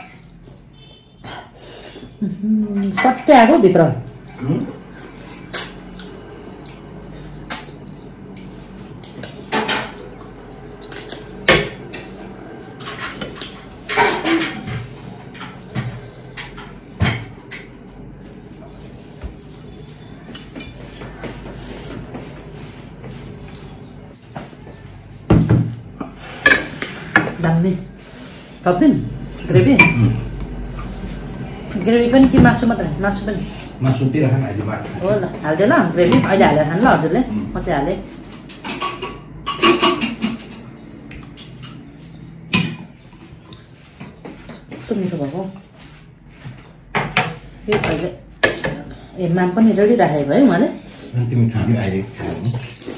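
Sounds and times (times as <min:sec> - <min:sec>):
dishes and cutlery clinking: 0:09.1 - 0:22.4, 0:25.3 - 0:27.5, 0:29.4 - 0:30.3, 0:36.0 - 0:36.6, 0:38.1 - 0:45.5, 0:47.0 - 0:49.0.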